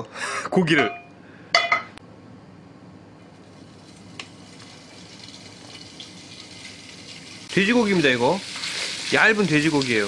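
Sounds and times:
oil sizzling in frying pan: 0:03.3 - 0:10.0.

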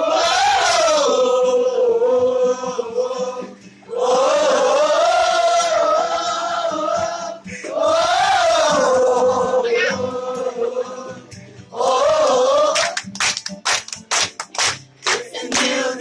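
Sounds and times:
group singing a chant: 0:00.0 - 0:13.0, 0:15.1 - 0:16.0
breaths: 0:07.4 - 0:07.8.

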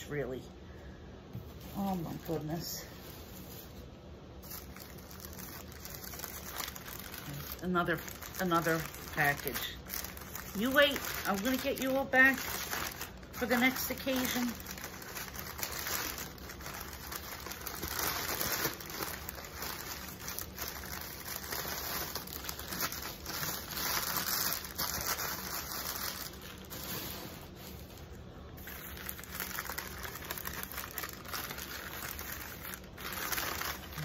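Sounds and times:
tissue paper rustling and crinkling: 0:01.4 - 0:34.0.

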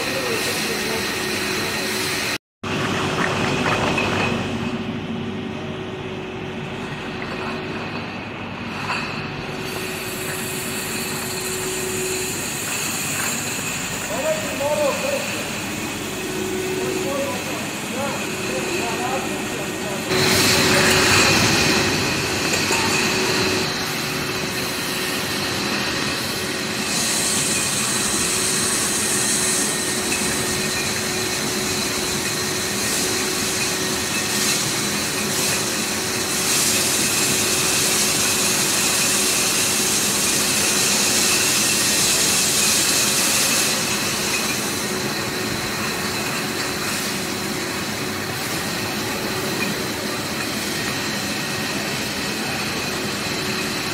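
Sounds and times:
conveyor hum and whine: 0:00.0 - 0:53.9
glass bottles clinking: 0:22.4 - 0:23.7.

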